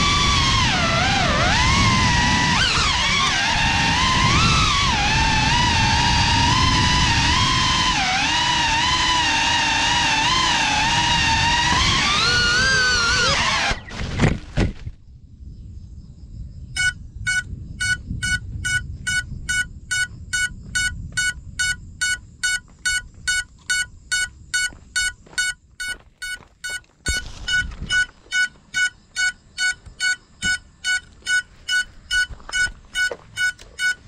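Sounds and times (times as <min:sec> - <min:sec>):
short high beeps: 0:16.8 - 0:34.0.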